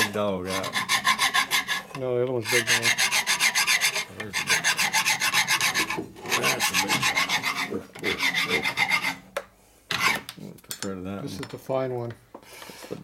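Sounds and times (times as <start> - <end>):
hand file rasping on metal: 0.0 - 9.3, 9.9 - 10.3.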